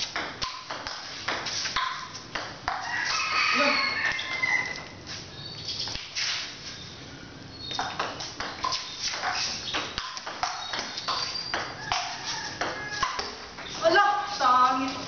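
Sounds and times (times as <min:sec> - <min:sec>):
table tennis ball knocking: 0:00.0 - 0:02.9, 0:07.8 - 0:13.4.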